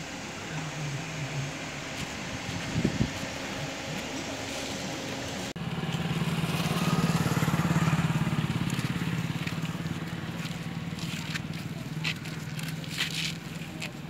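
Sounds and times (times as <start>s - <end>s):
vehicle engine pulsing hum: 0.0s - 14.0s.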